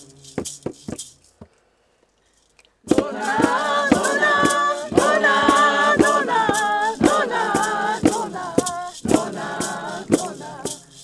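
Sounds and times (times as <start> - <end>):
hand beat strokes: 0.0 - 1.6, 2.9 - 11.0
women singing together: 2.9 - 11.0.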